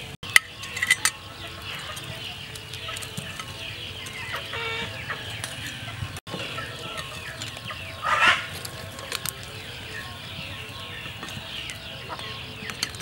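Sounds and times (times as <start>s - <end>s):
chickens clucking: 0.0s - 13.0s
chicken squawk: 4.2s - 8.6s.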